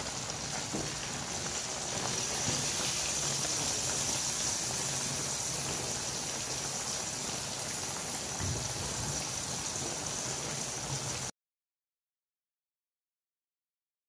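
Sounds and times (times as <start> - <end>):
curry sizzling in a pan: 0.0 - 11.3.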